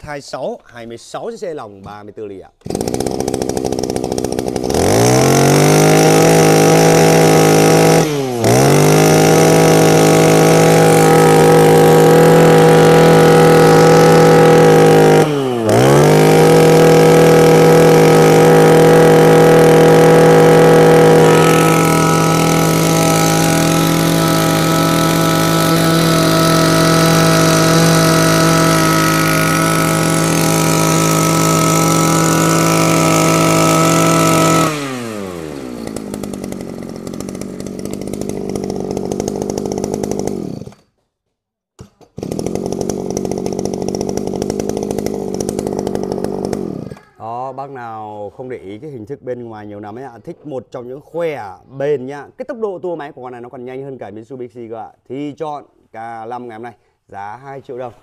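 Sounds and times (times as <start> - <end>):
brush cutter engine: 2.6 - 40.9, 42.0 - 47.2.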